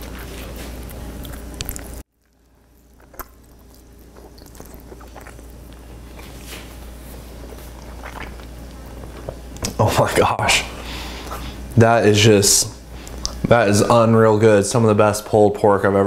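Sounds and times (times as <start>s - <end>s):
person chewing food: 0.0s - 9.8s.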